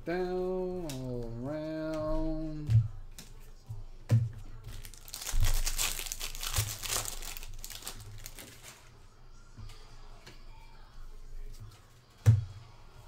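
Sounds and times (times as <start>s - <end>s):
plastic wrapper crinkling: 4.7s - 8.9s.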